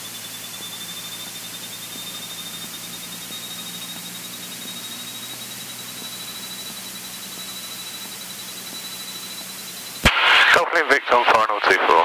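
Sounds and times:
thin high whine: 0.0s - 12.0s
intercom hiss: 10.0s - 12.0s.

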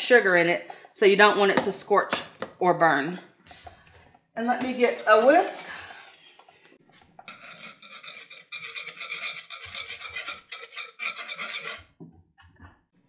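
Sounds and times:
wire whisk scraping a saucepan: 6.9s - 12.0s.

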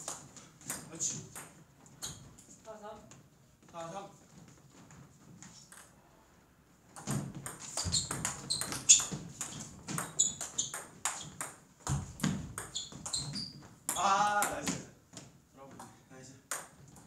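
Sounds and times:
table tennis ball pinging: 7.0s - 14.8s, 15.8s - 17.0s.

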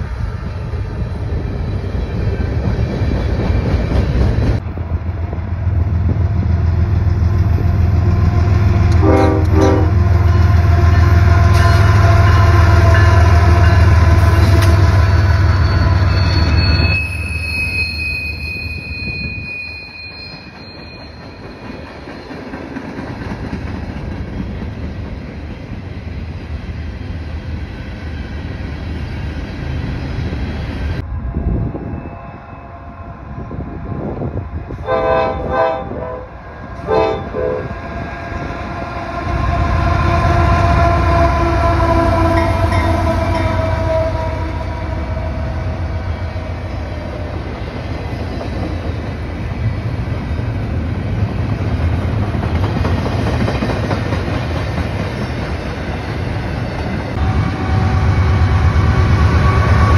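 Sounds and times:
diesel locomotive engine: 0.0s - 59.9s
railcars rumbling: 0.0s - 59.9s
train horn: 7.8s - 16.6s, 31.5s - 47.0s, 57.1s - 59.9s
high wheel squeal: 15.1s - 22.5s.

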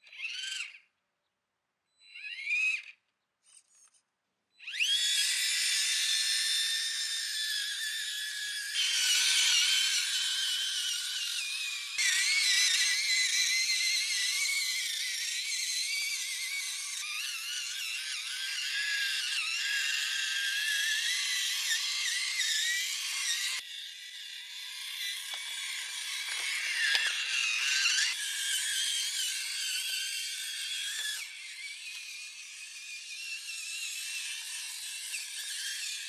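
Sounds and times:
small electric motor whining: 0.0s - 0.9s, 2.0s - 36.0s.

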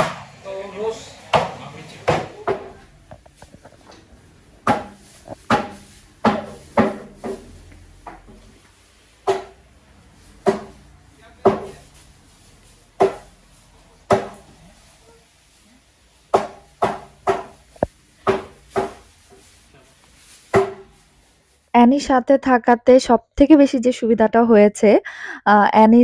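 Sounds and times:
cleaver chopping raw meat: 4.6s - 7.2s, 13.0s - 13.3s, 14.1s - 14.4s, 18.2s - 19.0s.

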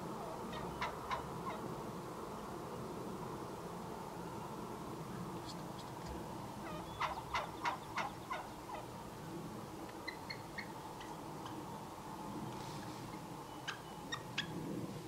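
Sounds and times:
turkey gobbling: 0.5s - 1.6s, 6.6s - 8.9s, 10.0s - 11.6s, 13.6s - 14.5s.

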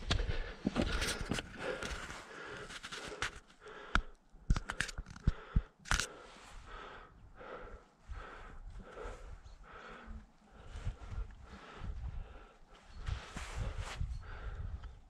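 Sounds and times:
footsteps on rocky trail: 0.0s - 3.4s.

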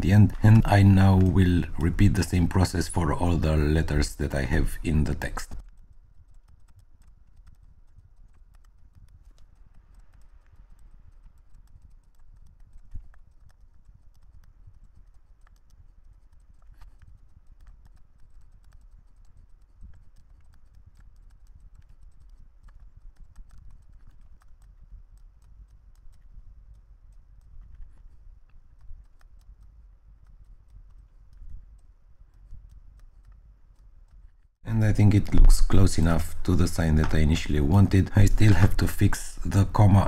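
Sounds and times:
computer mouse and keyboard clicking: 0.0s - 40.0s.

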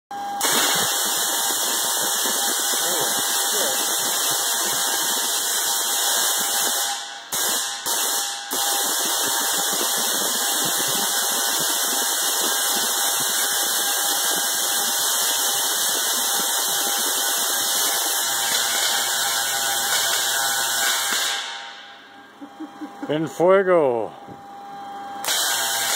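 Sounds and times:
tesla coil electric buzz: 0.1s - 25.9s.

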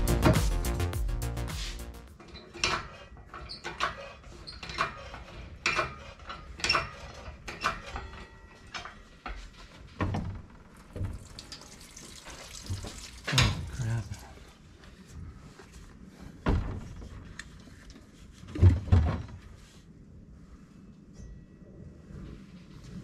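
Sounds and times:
coolant dripping and splashing: 10.8s - 14.1s.

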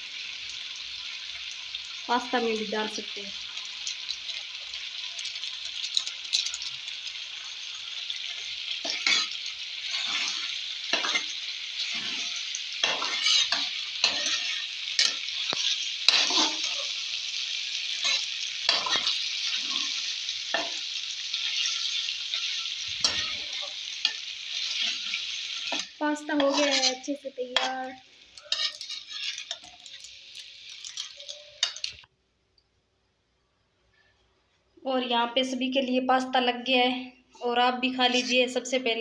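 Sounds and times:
pasta sizzling in a pan: 0.0s - 32.1s, 37.3s - 39.0s
metal spatula scraping a pan: 5.1s - 30.1s, 30.8s - 32.0s, 37.9s - 38.7s.

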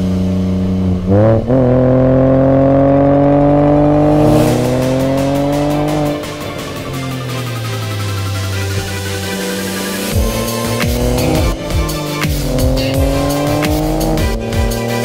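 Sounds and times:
car engine revving: 0.0s - 15.0s
music with a beat: 4.5s - 15.0s.

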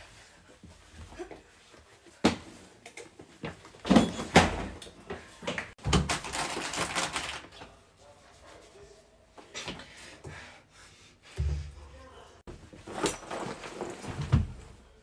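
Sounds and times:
rustling and clatter: 12.5s - 14.8s.

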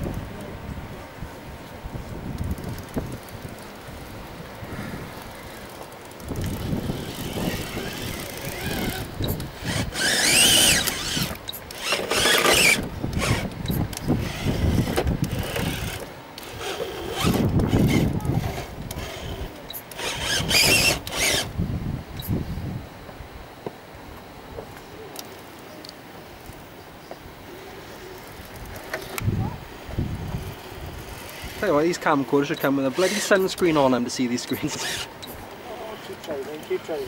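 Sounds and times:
electric motor whining in bursts: 4.8s - 22.8s, 30.2s - 37.0s.

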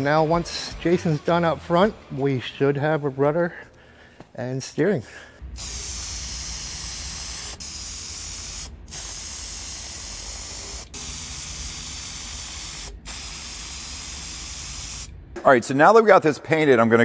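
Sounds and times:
spray paint can hissing: 5.5s - 15.1s.

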